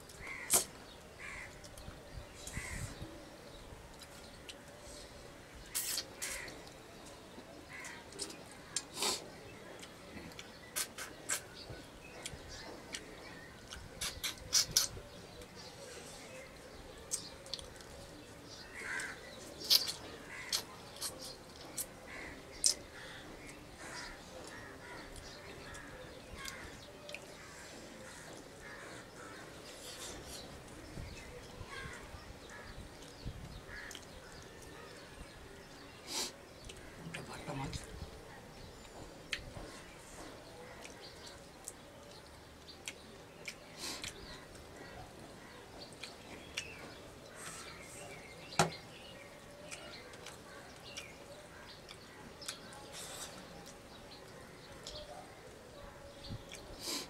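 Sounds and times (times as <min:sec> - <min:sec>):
crows cawing: 0:00.2 - 0:00.5, 0:01.2 - 0:01.6, 0:18.8 - 0:19.2
fingers eating rice on steel plate: 0:18.8 - 0:30.9, 0:32.4 - 0:37.9, 0:38.8 - 0:47.8, 0:49.6 - 0:55.6, 0:56.4 - 0:57.0.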